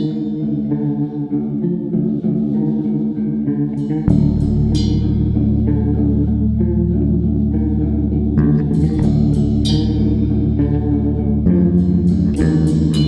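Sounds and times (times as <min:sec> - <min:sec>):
metal band playing: 0:03.8 - 0:13.0.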